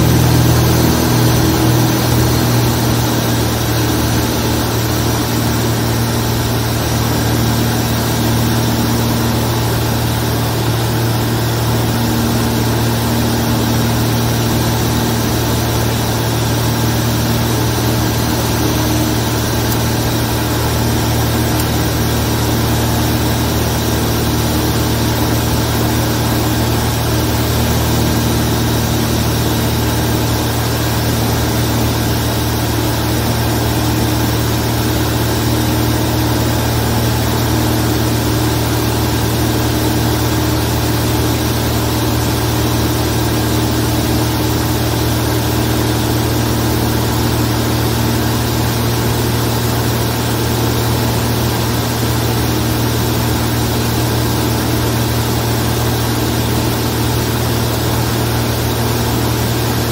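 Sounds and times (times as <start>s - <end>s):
light aircraft engine and propeller: 0.0s - 59.9s.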